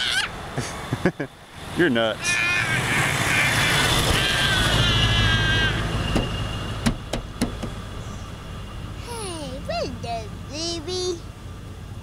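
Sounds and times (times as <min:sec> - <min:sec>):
vehicle passing close by: 0:00.3 - 0:09.8
child's high-pitched vocal sound: 0:09.0 - 0:11.3.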